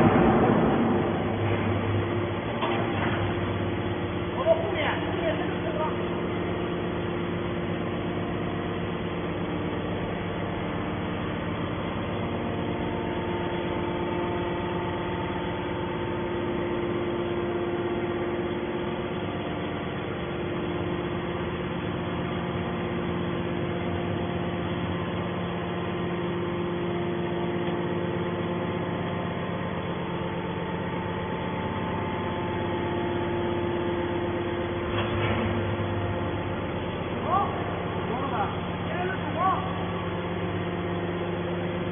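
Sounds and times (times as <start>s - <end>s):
hydraulic baler humming: 0.0s - 41.9s.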